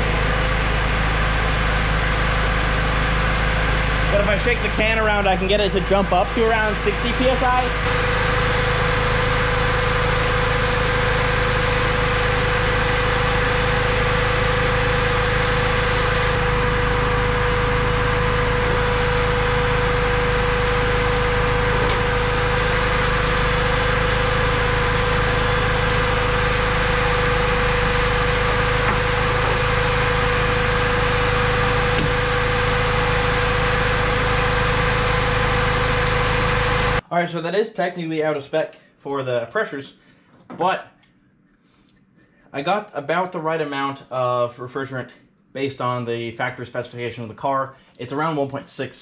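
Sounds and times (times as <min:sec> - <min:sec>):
car engine idling: 0:00.0 - 0:37.0
compressor whine: 0:00.0 - 0:37.1.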